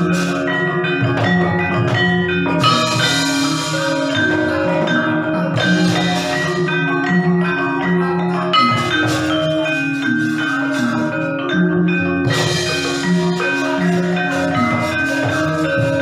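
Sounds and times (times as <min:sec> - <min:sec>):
gamelan music: 0:00.0 - 0:16.0.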